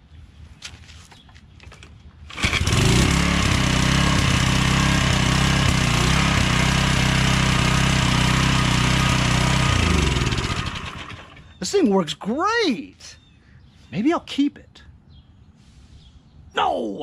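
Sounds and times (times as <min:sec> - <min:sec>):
small engine pull-started and running: 0:02.3 - 0:11.6.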